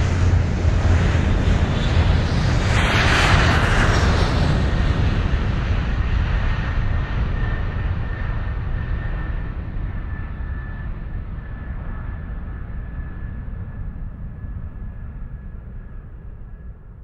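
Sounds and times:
deep rumbling noise: 0.0 - 5.6.

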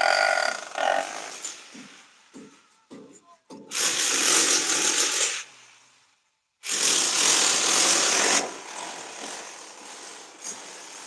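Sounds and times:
power hammer chiselling brick: 1.1 - 5.5, 6.6 - 11.0.

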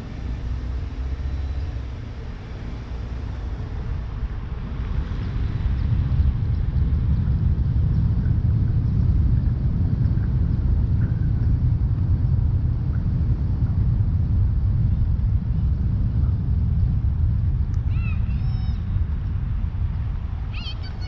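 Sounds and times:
car driving rumble: 0.0 - 21.0.

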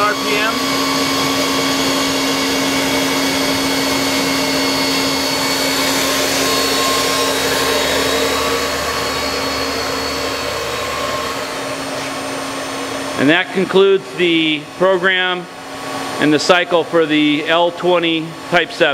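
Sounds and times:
lathe spindle whirring hum: 0.0 - 18.9.

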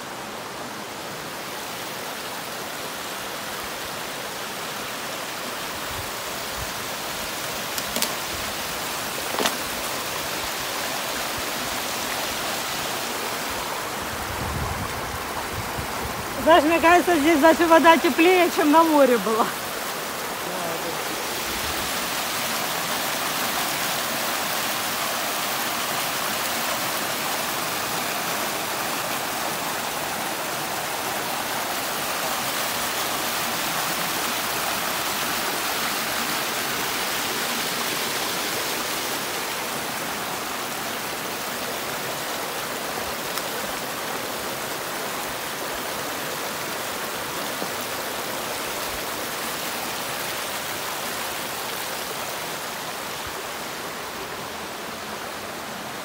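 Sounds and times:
waterfall splashing into pool: 6.2 - 14.0, 16.2 - 55.5.

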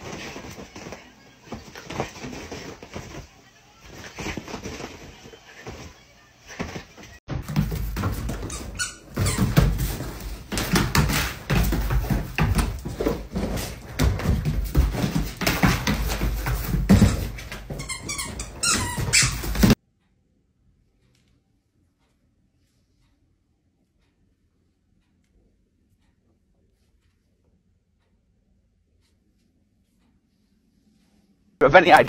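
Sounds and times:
dog paws thumping on wooden floor: 0.0 - 5.9, 6.5 - 19.8.

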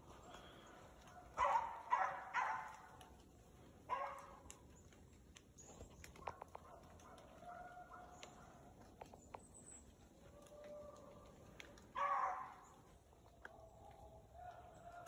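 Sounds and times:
hound barking: 0.2 - 3.2, 3.8 - 4.6, 6.2 - 8.8, 10.4 - 15.0.

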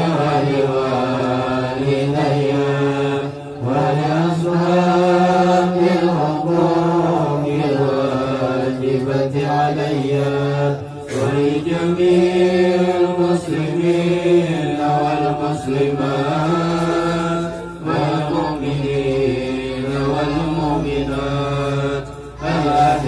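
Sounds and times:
men chanting together: 0.0 - 23.0.

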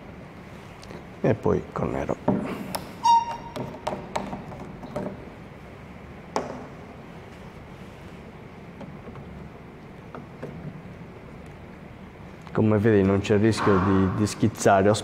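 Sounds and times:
brief squeak: 3.0 - 3.6.

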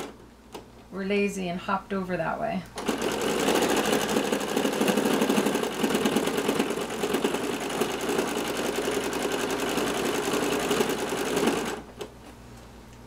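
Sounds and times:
sewing machine stitching fast: 2.8 - 11.9.

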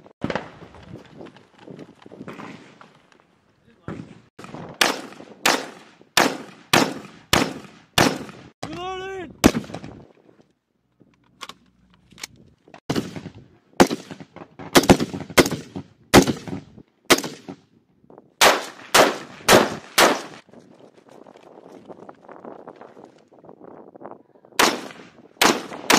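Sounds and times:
rifle shots echoing: 4.0 - 8.6, 9.4 - 9.9, 12.9 - 17.6, 18.4 - 20.4, 24.6 - 25.9.

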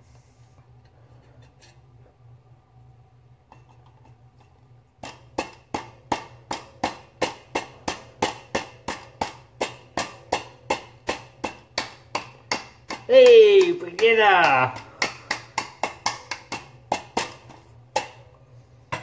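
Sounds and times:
knife chopping on cutting board: 5.0 - 18.2.

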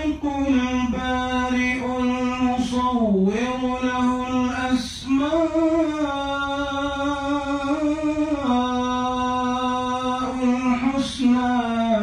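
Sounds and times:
man reciting melodically: 0.0 - 12.0.

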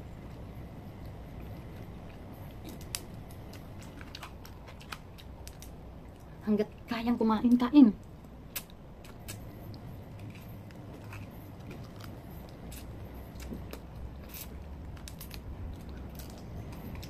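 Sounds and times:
low steady hum: 0.0 - 17.0
chewing: 8.0 - 17.0.

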